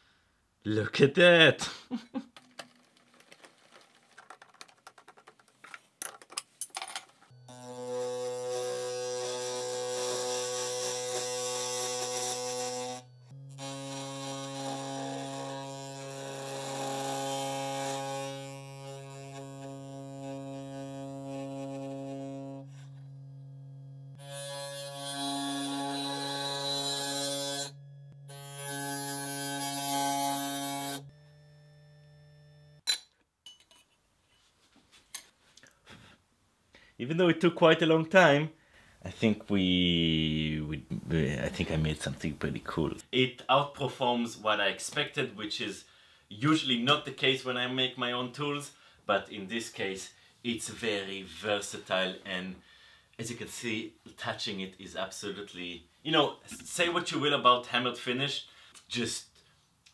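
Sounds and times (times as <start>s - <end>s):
buzzy sustained drone: 10.6s - 16.0s, 18.7s - 32.8s.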